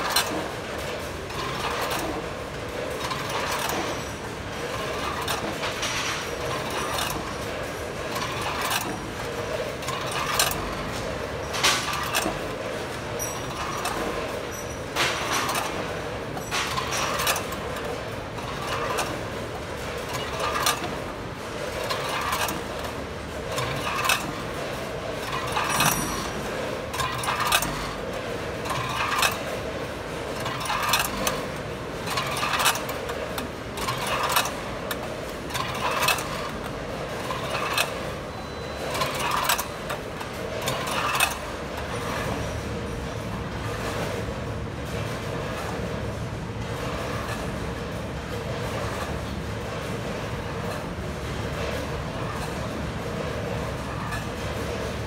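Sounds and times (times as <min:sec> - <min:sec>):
vibrating pans rattling candies: 0:00.0 - 0:42.0.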